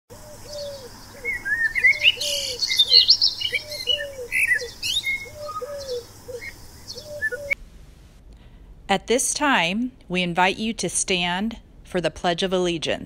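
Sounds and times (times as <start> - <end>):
dove cooing: 0.1 - 7.6
songbirds chirping and trilling: 0.1 - 7.6.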